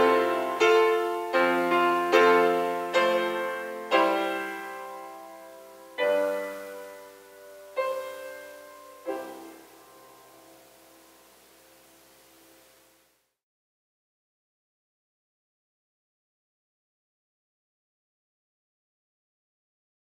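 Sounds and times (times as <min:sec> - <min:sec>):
grand piano playing slow chords: 0:00.0 - 0:13.0.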